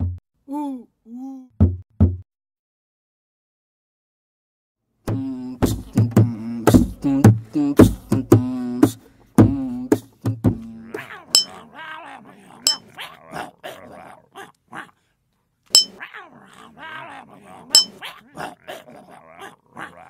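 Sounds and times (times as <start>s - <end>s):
voice sounds: 0.5s - 1.5s, 8.4s - 15.0s, 15.7s - 20.0s
beatbox music: 5.1s - 10.9s
glass clinks: 15.7s - 16.0s, 17.8s - 18.0s.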